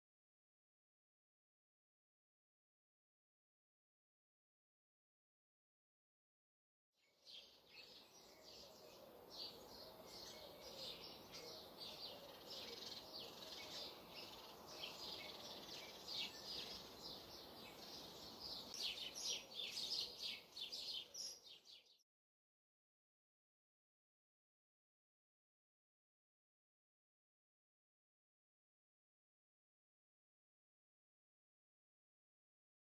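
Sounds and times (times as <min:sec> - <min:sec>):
small birds chirping: 0:07.0 - 0:22.0.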